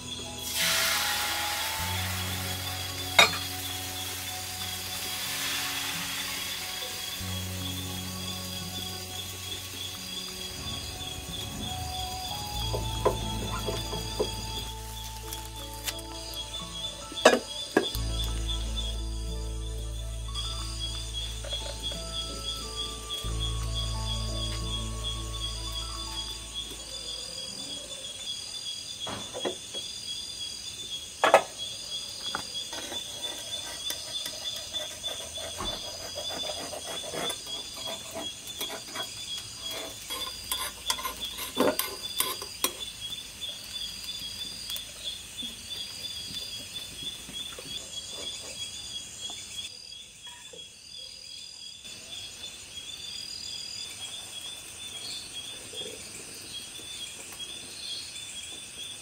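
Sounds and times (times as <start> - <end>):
crickets chirping: 0.0 - 59.0
utensil clinking and scraping pan: 3.0 - 3.6, 32.7 - 42.9.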